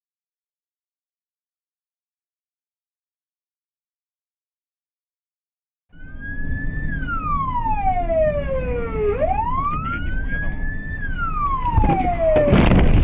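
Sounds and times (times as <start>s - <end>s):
road noise: 5.9s - 13.0s
siren wailing: 5.9s - 13.0s
car crash: 11.4s - 13.0s.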